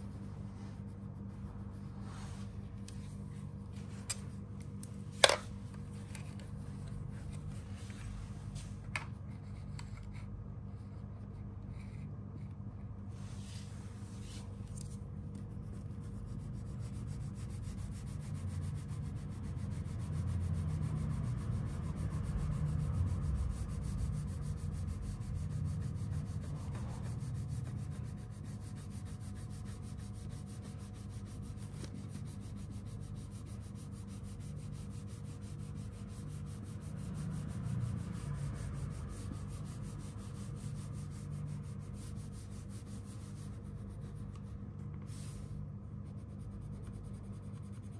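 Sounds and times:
crayon rubbing on paper: 15.6s - 47.9s.

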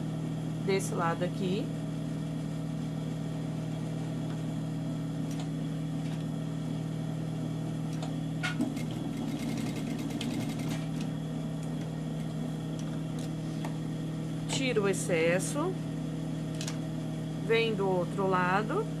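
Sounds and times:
sewing machine motor humming: 8.6s - 11.1s.

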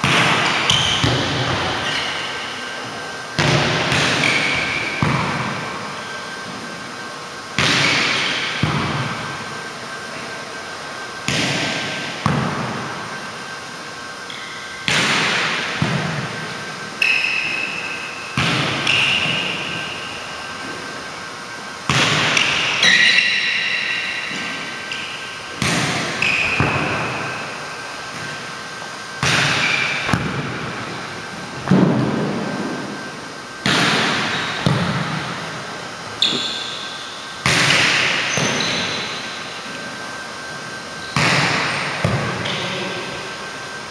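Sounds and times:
volleyballs hit and bouncing: 0.0s - 6.7s, 7.5s - 9.6s, 11.2s - 13.0s, 14.3s - 21.0s, 21.8s - 35.6s, 36.2s - 39.8s, 41.0s - 42.9s
short high squeaks: 36.2s - 37.0s.

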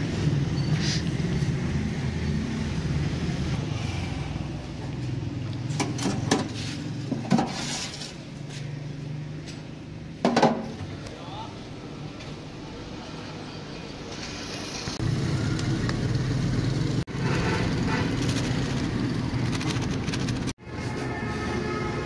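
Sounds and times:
street noise: 0.0s - 22.0s
vehicle engine humming: 10.9s - 20.6s.

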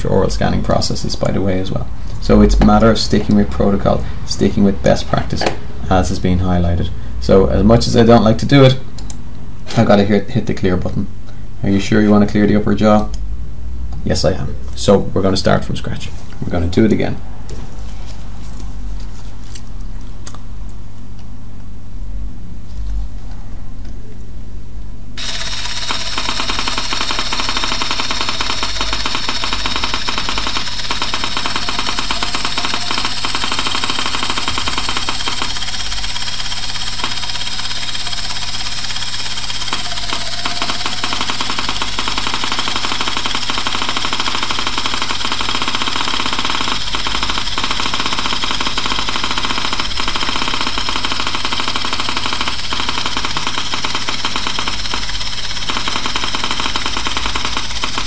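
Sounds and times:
rapid crackle of clicks: 25.2s - 58.0s
scanner hissing buzz: 25.2s - 58.0s.

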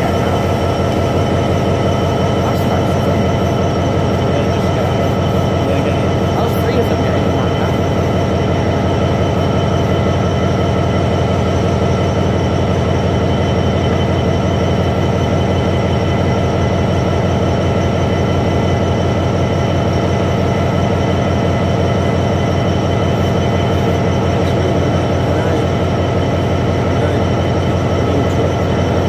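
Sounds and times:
diesel locomotive idling: 0.0s - 29.0s
high whine: 0.0s - 29.0s.

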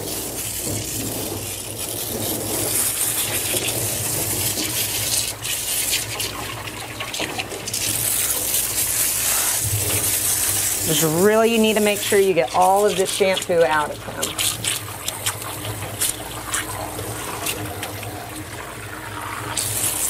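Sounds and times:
water splashing into metal tub: 0.0s - 20.0s
water spray hissing: 7.7s - 18.0s, 19.5s - 20.0s.

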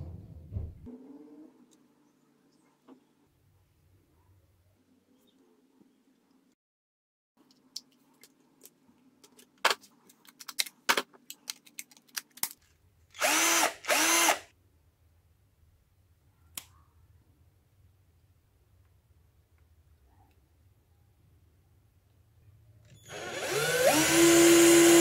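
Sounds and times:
cordless drill motor whining: 13.2s - 14.4s, 22.9s - 25.0s.

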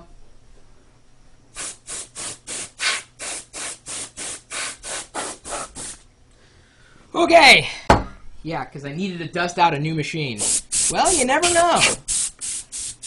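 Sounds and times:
compressed air hissing puffs: 1.5s - 7.1s, 10.4s - 13.0s.

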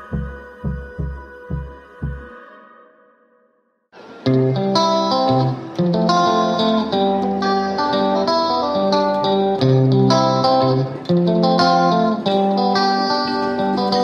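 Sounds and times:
plucked guitar music: 4.0s - 14.0s.

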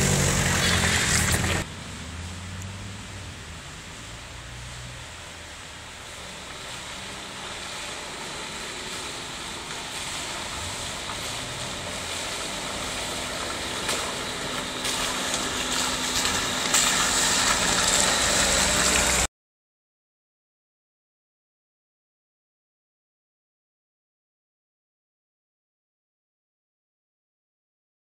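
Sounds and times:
vehicle engine driving on mud: 0.0s - 19.3s.

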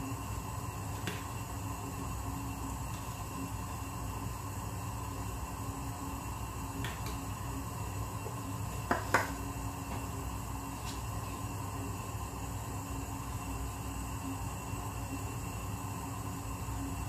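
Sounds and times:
gas burner humming: 0.0s - 17.0s.

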